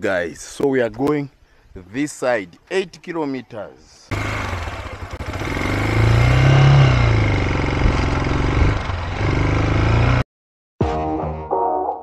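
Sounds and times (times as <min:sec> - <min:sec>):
motorcycle engine revving: 0:04.1 - 0:10.2.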